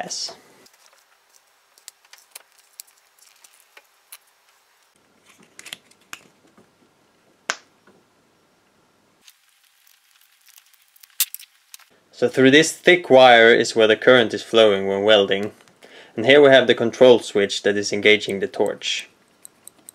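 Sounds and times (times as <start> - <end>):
cable rustling: 0.6 - 6.7, 9.2 - 11.9.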